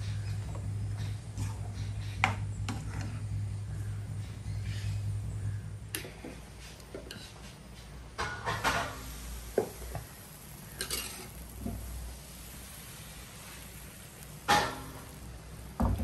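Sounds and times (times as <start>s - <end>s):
utensils clinking against cookware: 10.7s - 11.4s.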